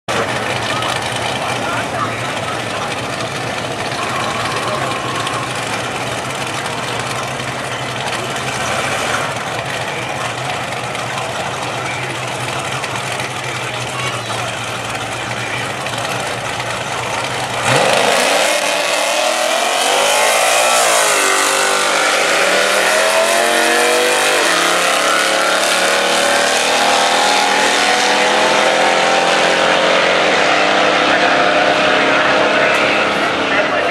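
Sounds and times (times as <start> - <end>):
race car engines revving: 0.1 - 33.9.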